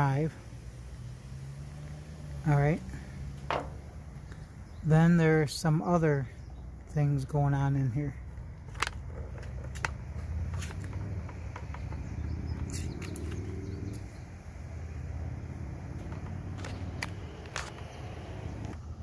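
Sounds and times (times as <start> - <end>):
small parts clicking and tapping: 8.7 - 13.4.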